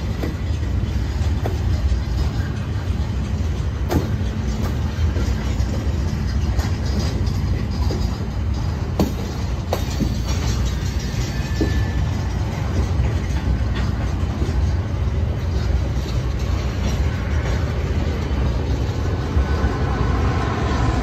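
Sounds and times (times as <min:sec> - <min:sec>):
train wheels rumbling on rails: 0:00.0 - 0:21.0
sharp metal clanks: 0:03.0 - 0:14.7.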